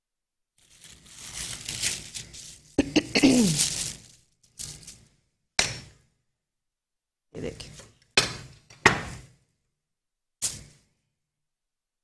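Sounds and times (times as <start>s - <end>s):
paper rustling and crinkling: 0.6s - 5.1s
person clearing throat: 2.8s - 3.8s.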